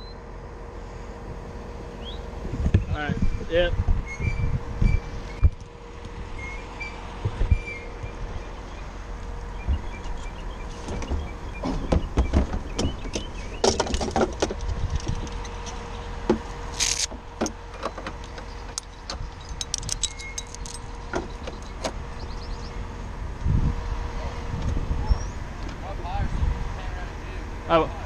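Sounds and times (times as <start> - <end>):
truck engine humming: 0.0 - 28.0
tools clicking and rattling: 16.7 - 21.9.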